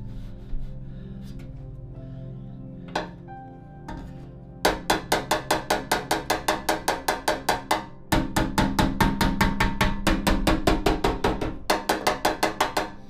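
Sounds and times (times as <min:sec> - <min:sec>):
hammer tapping steel panel: 0:04.7 - 0:13.0.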